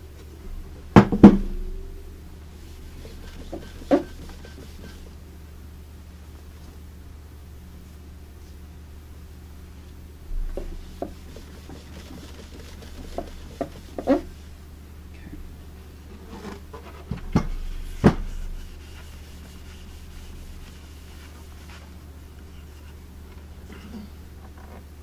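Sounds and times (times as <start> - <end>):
steady low hum: 0.0 - 25.0
cloth rubbing on wood: 2.5 - 5.2, 10.5 - 14.6, 16.3 - 23.1.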